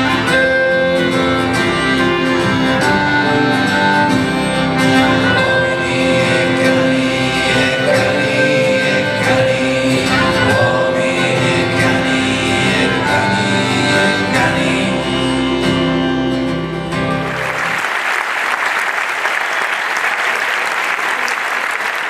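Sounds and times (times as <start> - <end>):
small band playing: 0.0 - 22.0
audience applauding: 17.1 - 22.0.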